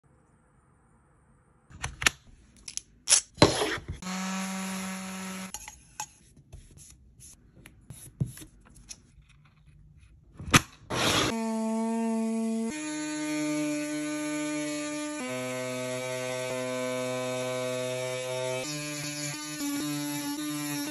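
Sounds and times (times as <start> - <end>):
rotary tool high whine: 4.0 - 5.8.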